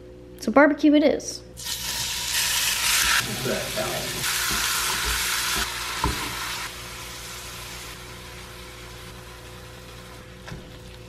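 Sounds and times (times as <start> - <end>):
ground beef frying in a pan: 1.6 - 10.3.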